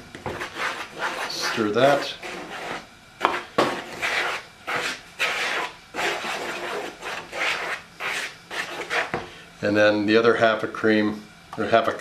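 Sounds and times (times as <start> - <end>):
spoon scraping plastic bowl: 0.3 - 9.2.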